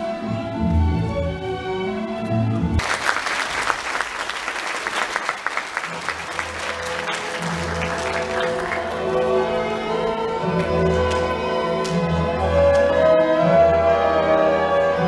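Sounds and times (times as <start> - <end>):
orchestral music: 0.0 - 2.9, 5.4 - 15.0
audience applauding: 2.8 - 11.4.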